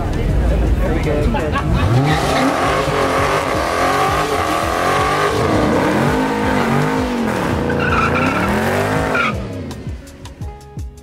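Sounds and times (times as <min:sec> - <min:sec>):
car engine revving: 0:00.0 - 0:10.5
tyres squealing: 0:01.8 - 0:09.6.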